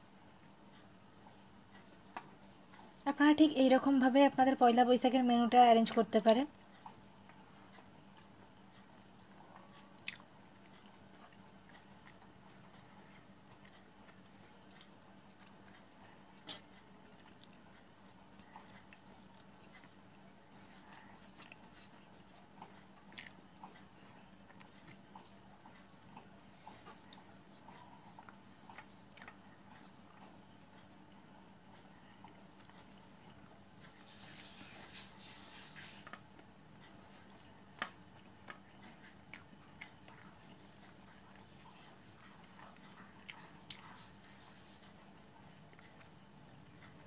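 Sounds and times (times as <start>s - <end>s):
faint hum: 0.0s - 47.0s
person eating by hand: 6.7s - 31.0s, 31.6s - 47.0s
person chewing: 7.7s - 30.4s, 38.2s - 41.5s, 42.2s - 44.6s.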